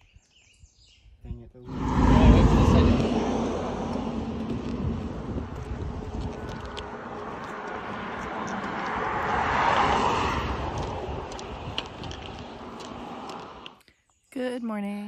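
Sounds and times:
vehicle passing: 1.7s - 13.8s
light sharp clicks on asphalt: 3.8s - 13.9s.

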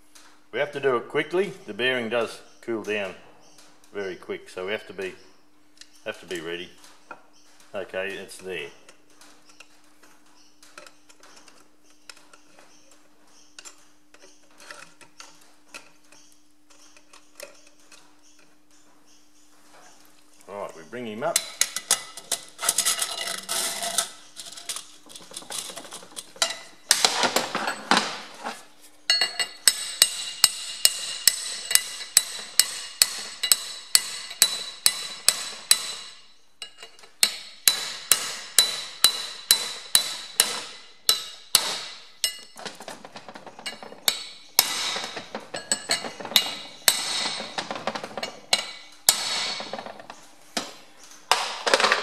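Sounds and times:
hammer tapping on steel: 29.2s - 36.2s, 37.2s - 42.5s.

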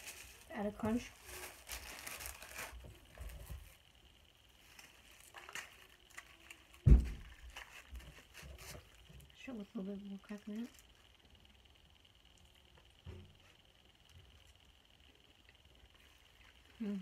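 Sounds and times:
cracker packet crinkling: 0.0s - 3.8s, 4.6s - 9.4s
loud thump: 6.8s - 7.2s.

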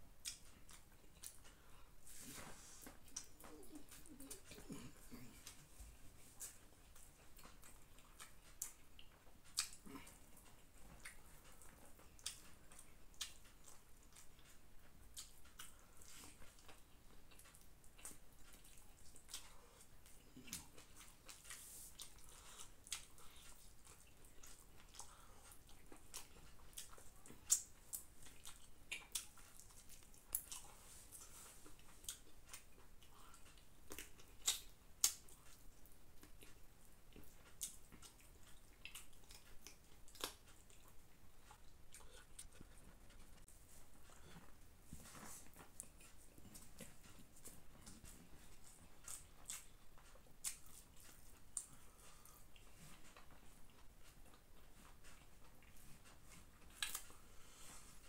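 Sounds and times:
man chewing: 0.2s - 58.0s
wet mouth clicks and smacks: 32.0s - 35.6s.

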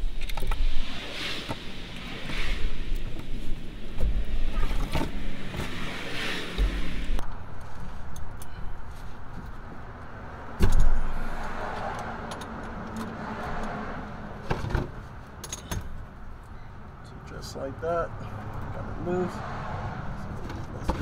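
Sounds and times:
metallic clinks and knocks: 15.4s - 16.0s.

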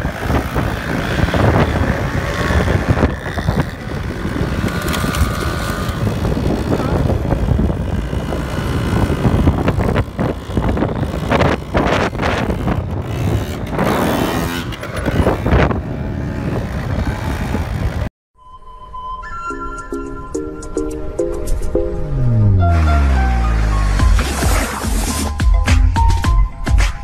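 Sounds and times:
quad bikes revving: 0.0s - 18.1s
wind noise on microphone: 0.0s - 18.1s.

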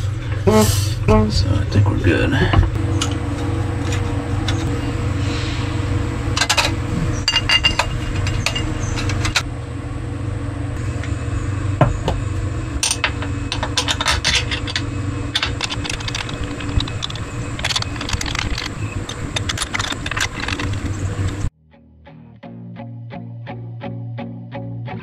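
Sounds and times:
steady low hum: 0.0s - 21.5s
metal tools clinking and scraping: 2.9s - 4.7s, 6.4s - 9.4s, 12.8s - 20.9s.

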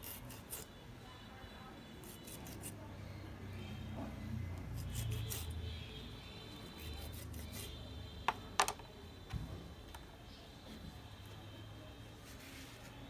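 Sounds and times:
knife cutting fish skin: 0.0s - 0.7s, 2.0s - 2.8s, 4.7s - 5.6s, 6.7s - 7.7s
faint scraping strokes: 12.2s - 13.0s.

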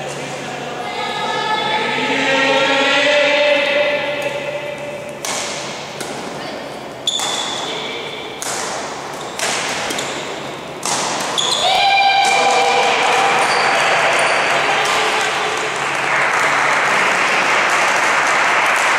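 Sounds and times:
rackets hitting shuttlecock: 4.1s - 16.6s
shoe squeaks: 7.0s - 8.4s, 9.2s - 10.6s, 11.3s - 11.8s, 13.4s - 14.6s.

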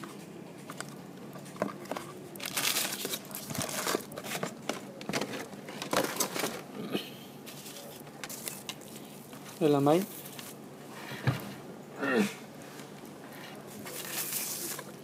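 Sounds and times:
packaging rustling and crinkling: 0.6s - 6.7s, 7.4s - 10.6s, 12.8s - 15.0s.

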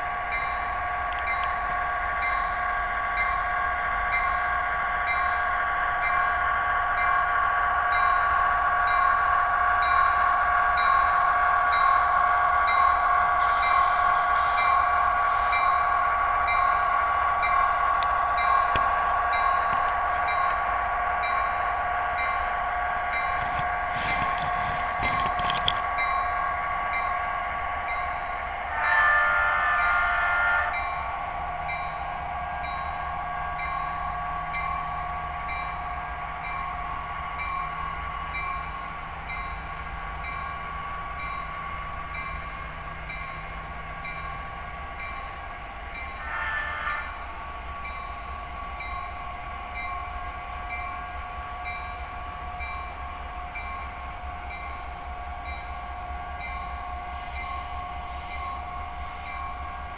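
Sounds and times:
locomotive horn blast: 28.7s - 30.9s, 46.2s - 47.2s.

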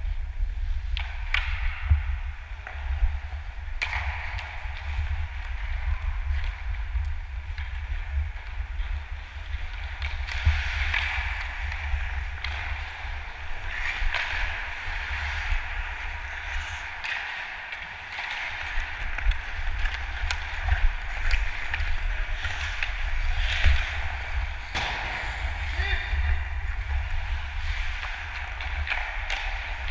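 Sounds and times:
sticks and puck clicking: 0.8s - 25.2s, 25.8s - 29.9s
skate blades scraping on ice: 7.8s - 29.9s
low wind rumble: 18.5s - 29.9s.

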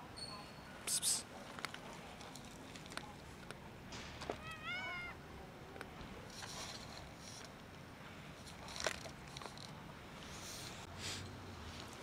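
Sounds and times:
cat meowing: 4.4s - 5.2s.

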